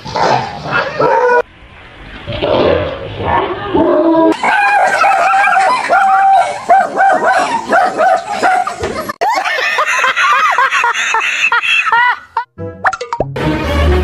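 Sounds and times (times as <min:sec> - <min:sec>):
dog barking rapidly: 0:04.4 - 0:08.8
man and woman laughing: 0:07.3 - 0:12.5.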